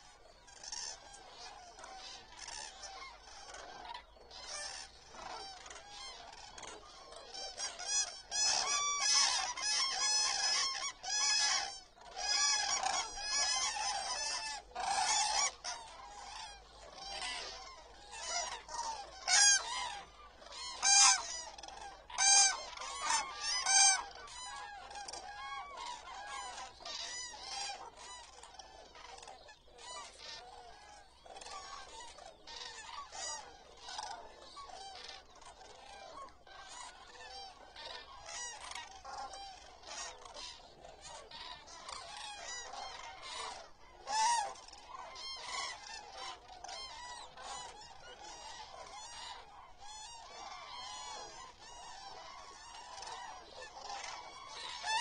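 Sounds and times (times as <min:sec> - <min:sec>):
cranes trumpeting calls: 0:00.0 - 0:55.0.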